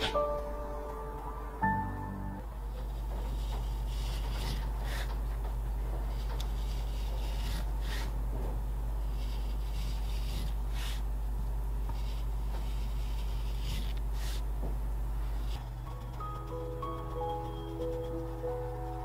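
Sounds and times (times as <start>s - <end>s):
rubbing and scraping leather: 2.9s - 5.3s, 6.0s - 8.2s, 9.0s - 11.1s.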